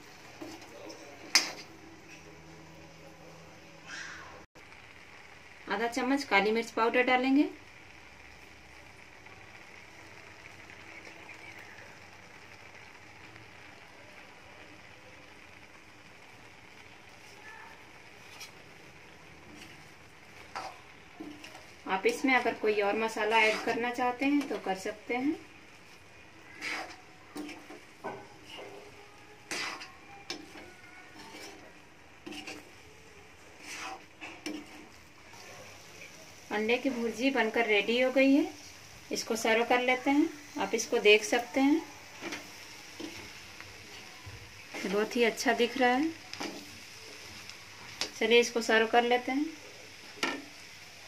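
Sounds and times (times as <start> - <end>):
eggs sizzling in a pan: 0.0 - 51.0
spatula scraping metal pan: 18.2 - 18.6, 19.5 - 24.9, 26.4 - 32.8, 33.6 - 35.0.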